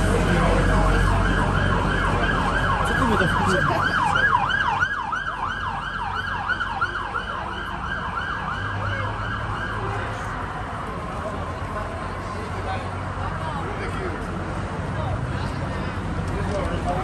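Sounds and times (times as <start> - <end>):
street hubbub: 0.0 - 17.0
siren yelping: 0.1 - 10.1.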